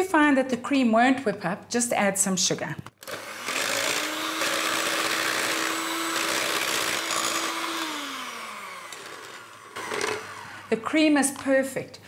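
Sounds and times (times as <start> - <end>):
electric hand mixer whirring: 3.0 - 11.2.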